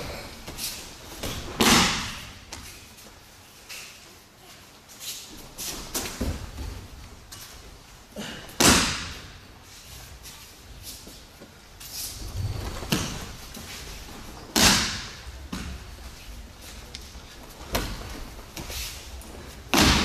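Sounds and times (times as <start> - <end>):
bare feet shuffling on mat: 0.0 - 8.1, 9.1 - 20.0
rustling and shuffling of clothing: 2.4 - 8.2, 9.4 - 14.6, 15.2 - 19.7
bodies thudding on mats: 5.5 - 7.4.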